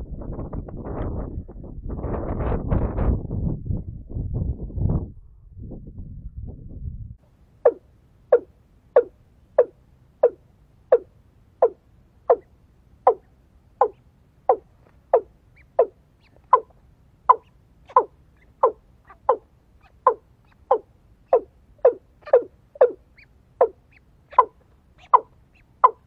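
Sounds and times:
bird calling low notes: 7.6 - 26.0.

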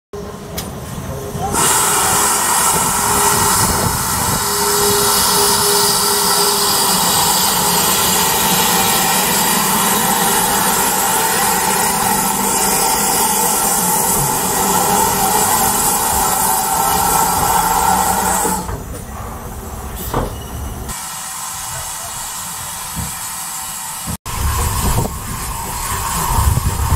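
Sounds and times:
steam locomotive letting off steam: 0.7 - 18.9, 19.9 - 26.9.

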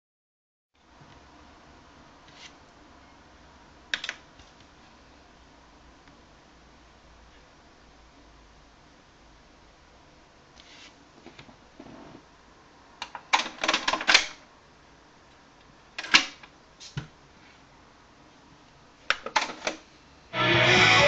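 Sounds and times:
guitar music from speakers: 20.3 - 21.0.

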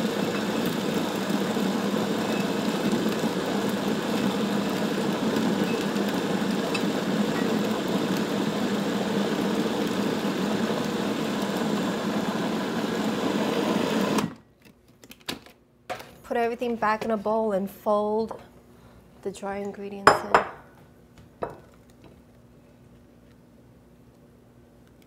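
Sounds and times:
food processor motor running: 0.0 - 14.4.

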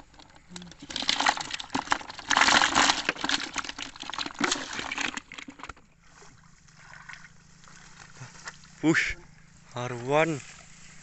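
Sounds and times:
net rustling with fish: 0.0 - 8.6
water splashing and sloshing: 0.0 - 8.8.

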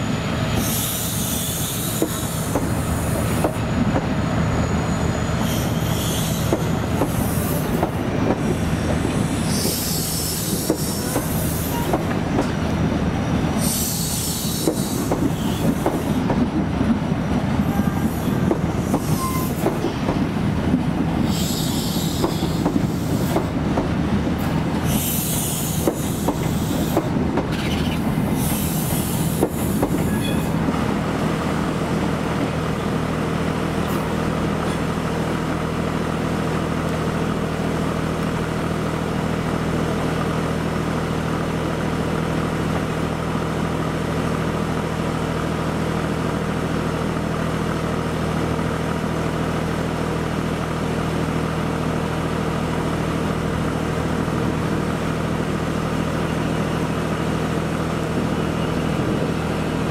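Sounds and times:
train wheels clicking over rail joints: 1.5 - 4.1, 5.7 - 30.9
high-pitched wheel squeal: 4.3 - 6.8, 17.7 - 19.7, 30.0 - 30.6.

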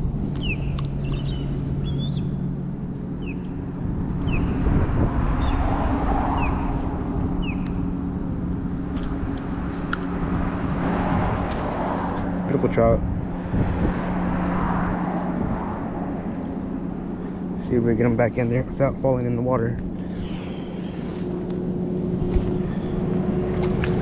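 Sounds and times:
traffic humming: 0.0 - 24.0
birds chirping: 0.4 - 4.6, 7.4 - 7.9, 16.3 - 23.0.

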